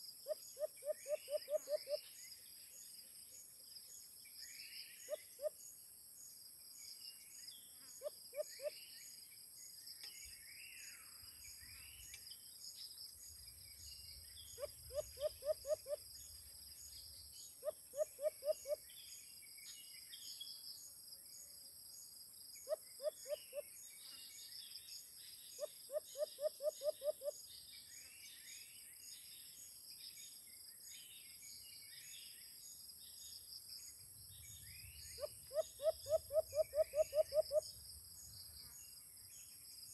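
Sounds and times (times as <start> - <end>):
dove hooting: 0.6 - 2.0, 14.6 - 16.0, 17.6 - 18.8, 35.2 - 37.6.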